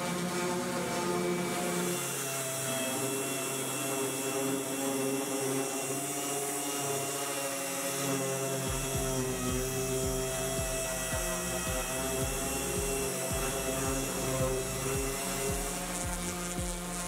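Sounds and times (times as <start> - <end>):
held synth chords: 0.0 - 17.0
steady high hiss: 8.6 - 17.0
bass beat: 8.7 - 17.0.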